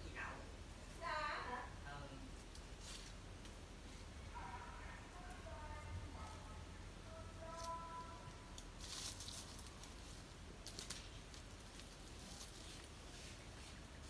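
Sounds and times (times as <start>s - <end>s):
peacock feathers rattling: 7.4s - 14.0s.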